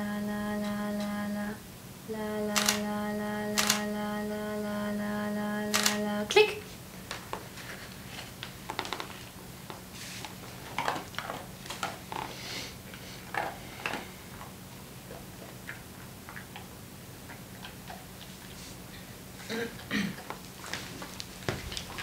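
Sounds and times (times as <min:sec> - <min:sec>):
low hum: 0:00.0 - 0:06.4.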